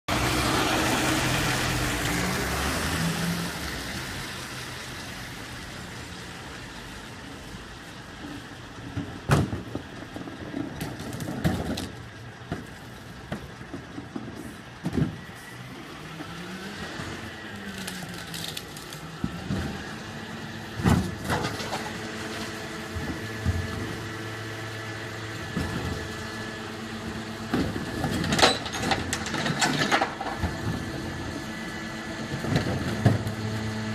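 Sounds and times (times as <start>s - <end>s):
lorry engine hum: 0.0s - 33.9s
metal clanks of wheelie bin: 20.8s - 24.0s, 27.4s - 30.9s, 32.2s - 33.4s.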